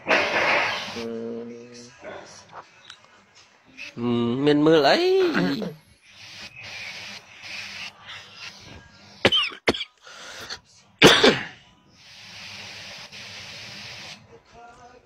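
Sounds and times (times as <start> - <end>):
steady hiss: 0.0 - 1.3, 5.9 - 9.3, 12.0 - 14.3
person coughing: 9.3 - 9.9, 11.0 - 11.6.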